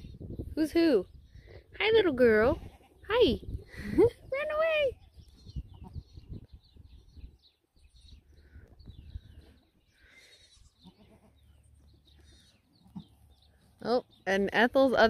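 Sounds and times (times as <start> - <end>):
wind rumble on microphone: 0.0 - 9.6.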